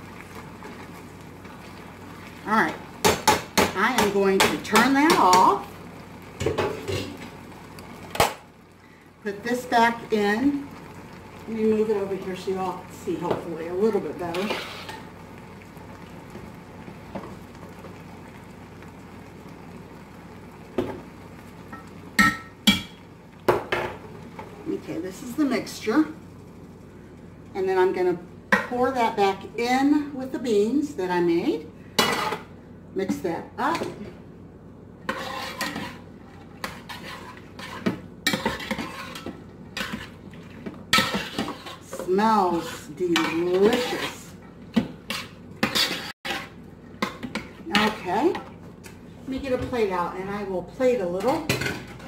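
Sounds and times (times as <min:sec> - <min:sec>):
onions sizzling in a frying pan: 0:00.0 - 0:52.0
spoon stirring and scraping pot: 0:13.2 - 0:15.1, 0:32.0 - 0:32.5, 0:35.0 - 0:49.8.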